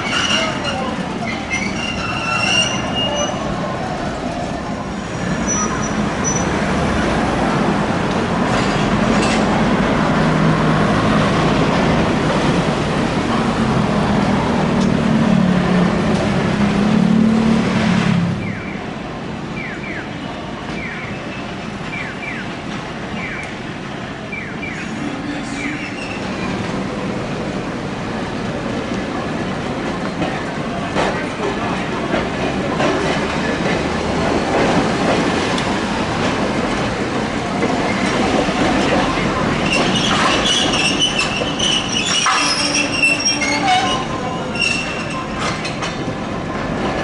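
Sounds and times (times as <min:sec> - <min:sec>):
wheel squeals: 0:00.0 - 0:03.5, 0:05.3 - 0:06.6, 0:39.6 - 0:45.8
streetcar wheel rumble: 0:00.0 - 0:47.0.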